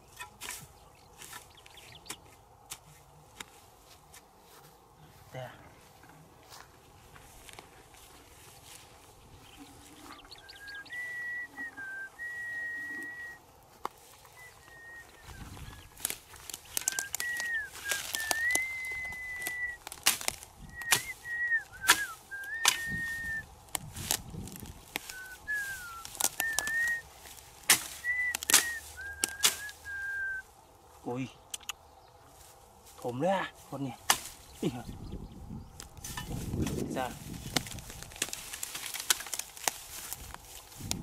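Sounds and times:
person whistling a slow tune: 0:10.6 - 0:13.4, 0:14.4 - 0:15.4, 0:16.8 - 0:19.8, 0:20.7 - 0:23.5, 0:25.0 - 0:27.0, 0:28.0 - 0:30.4
hoe chopping into soil: 0:19.4 - 0:21.2, 0:21.8 - 0:22.9, 0:27.6 - 0:29.8, 0:34.0 - 0:34.4.

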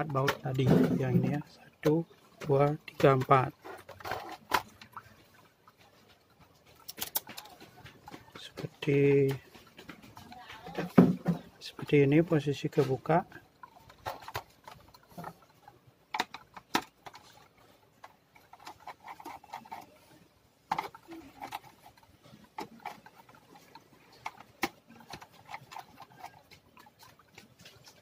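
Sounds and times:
screwdriver scraping plastic: 0:18.0 - 0:26.6.

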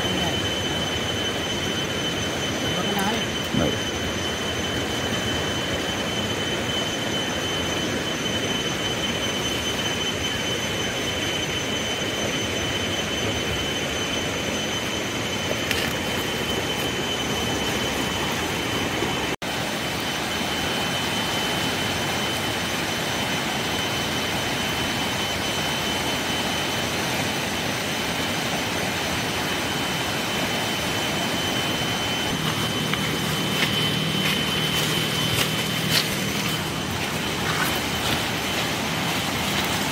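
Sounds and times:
thin high whine: 0:00.0 - 0:39.9
river rushing roar: 0:14.4 - 0:39.9.

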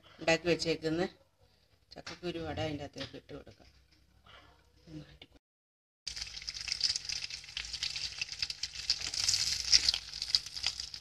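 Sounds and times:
food frying in hot oil: 0:06.1 - 0:11.0.

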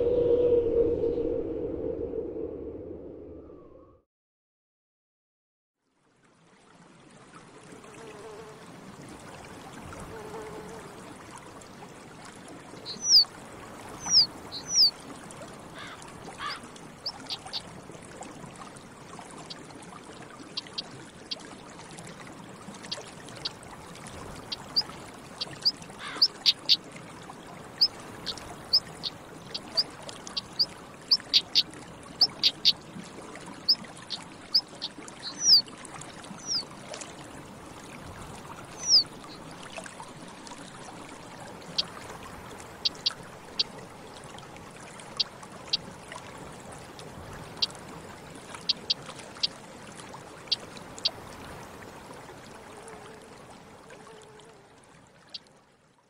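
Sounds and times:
bird whistles: 0:12.9 - 0:13.2, 0:14.0 - 0:14.9, 0:35.2 - 0:35.6, 0:36.4 - 0:36.6, 0:38.8 - 0:39.0.

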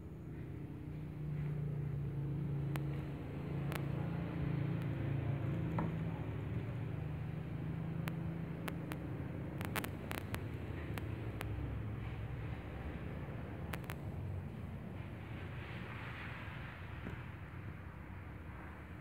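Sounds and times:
low mechanical hum: 0:00.0 - 0:19.0
faint sharp clicks: 0:02.7 - 0:04.0, 0:08.0 - 0:11.6, 0:13.7 - 0:14.1.

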